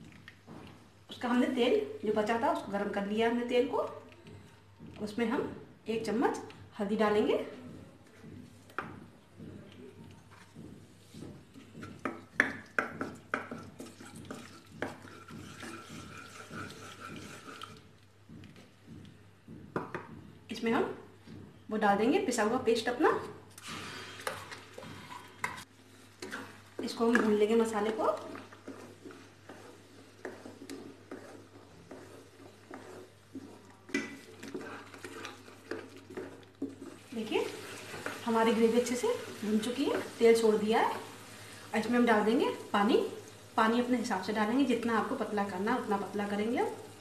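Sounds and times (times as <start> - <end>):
spatula scraping metal pan: 13.8 - 17.8, 24.1 - 40.2.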